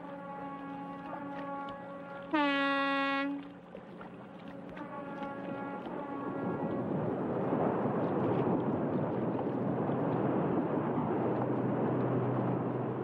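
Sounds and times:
ship's horn: 0:00.0 - 0:07.8.

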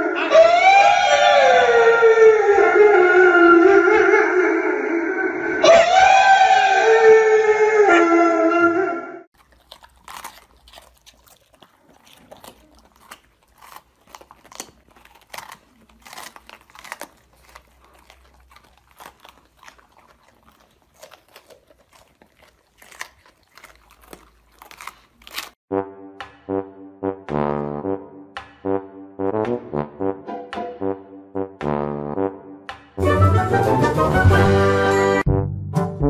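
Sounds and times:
dogs crunching bell peppers: 0:09.4 - 0:25.6
brass music: 0:25.7 - 0:36.0.

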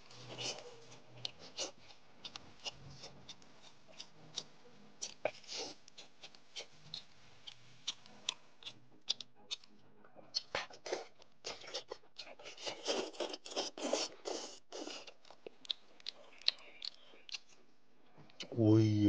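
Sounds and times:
sucking and slurping: 0:00.1 - 0:06.8, 0:10.4 - 0:15.2
chewing with wet mouth clicks: 0:00.2 - 0:09.7, 0:10.3 - 0:17.6.

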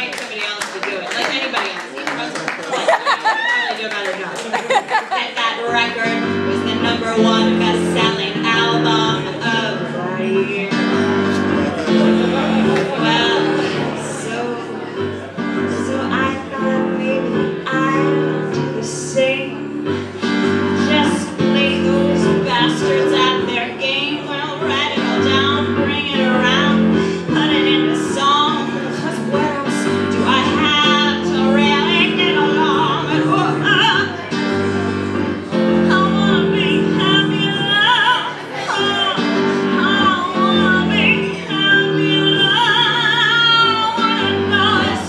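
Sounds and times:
woman singing with vibrato: 0:05.1 - 0:34.4, 0:35.6 - 0:45.0
electric piano chords: 0:05.2 - 0:45.0.

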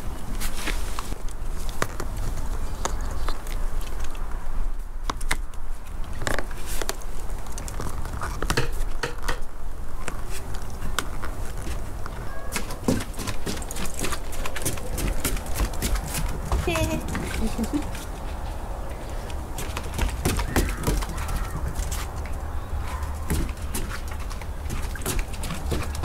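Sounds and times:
puppy claws tapping on wooden deck: 0:12.5 - 0:18.0, 0:19.6 - 0:22.4, 0:23.0 - 0:26.0.

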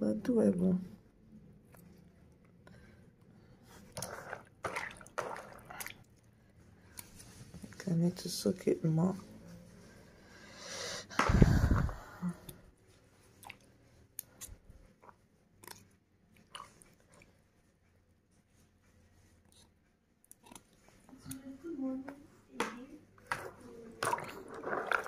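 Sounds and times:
wet squelches of beans: 0:03.6 - 0:07.3, 0:11.2 - 0:17.6, 0:23.3 - 0:25.0.

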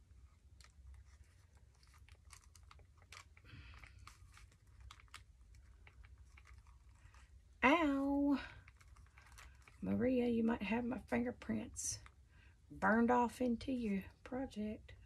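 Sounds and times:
paper rustling: 0:00.0 - 0:07.5.

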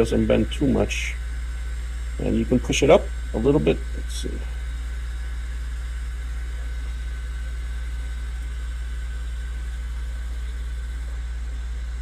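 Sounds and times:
electrical hum with faint hiss: 0:00.0 - 0:12.0.

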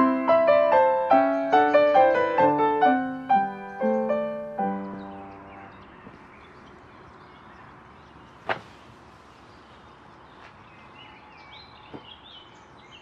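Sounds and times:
small birds chirping: 0:00.7 - 0:13.0.

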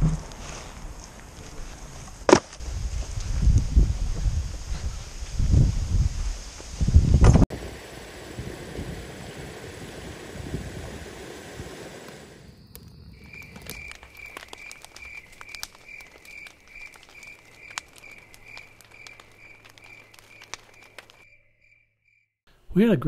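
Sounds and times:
wind on microphone: 0:02.6 - 0:12.5
campfire crackling and popping: 0:06.6 - 0:21.3
cricket chirping: 0:12.0 - 0:22.3.

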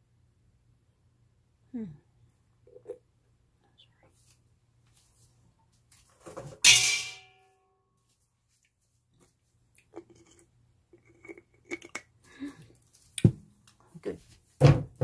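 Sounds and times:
tableware clink: 0:06.6 - 0:07.5.

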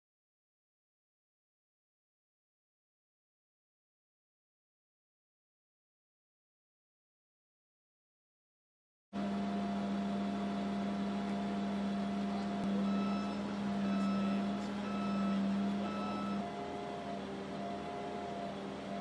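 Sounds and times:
crane engine humming: 0:09.2 - 0:19.0
warning beeper: 0:12.6 - 0:16.8.

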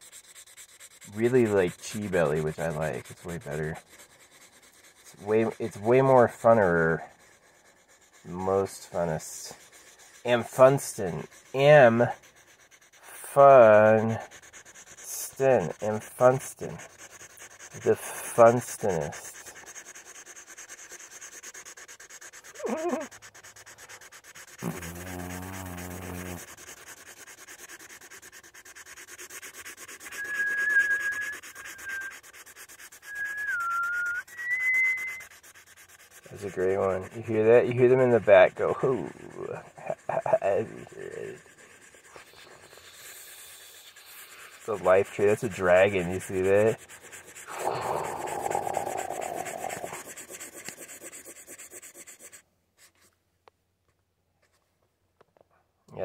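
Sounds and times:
felt tip marker scrubbing paper: 0:00.0 - 0:53.2
person humming: 0:22.6 - 0:23.1, 0:24.6 - 0:26.4, 0:47.5 - 0:50.1
person whistling: 0:30.1 - 0:32.2, 0:33.0 - 0:35.2.

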